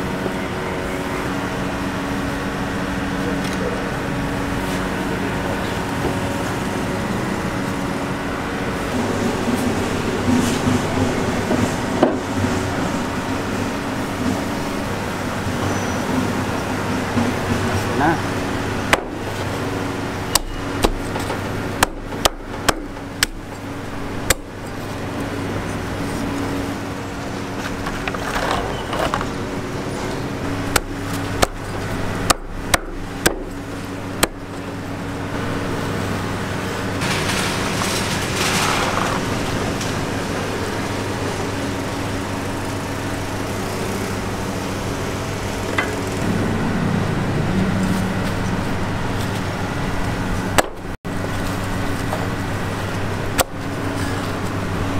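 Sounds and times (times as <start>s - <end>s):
steady low hum: 0.0s - 54.9s
cleaver chopping on wooden block: 32.3s - 33.5s.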